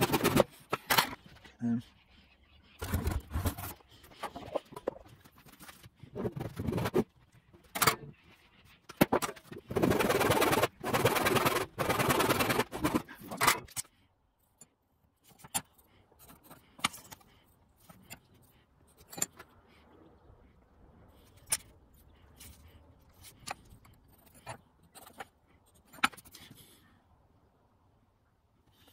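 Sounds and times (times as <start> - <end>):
pencil scratching: 0.0 - 0.8, 1.9 - 13.5
hand saw cutting wood: 9.7 - 13.6.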